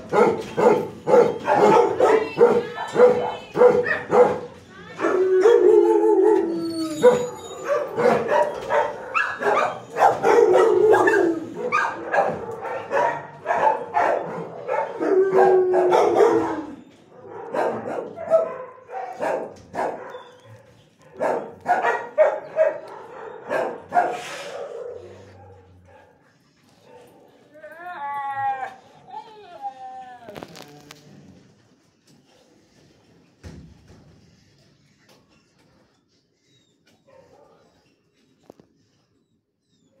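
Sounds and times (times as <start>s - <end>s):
dogs barking: 0.0s - 6.4s, 7.0s - 26.2s
dog crying: 5.0s - 12.0s.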